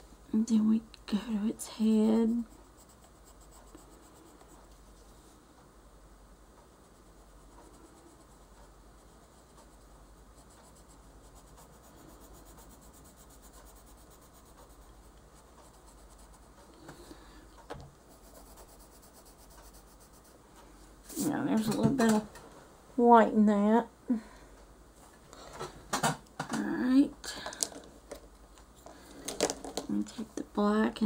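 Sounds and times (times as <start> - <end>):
pencil scratching on paper: 1.9 - 4.8, 6.8 - 16.6, 18.0 - 20.4.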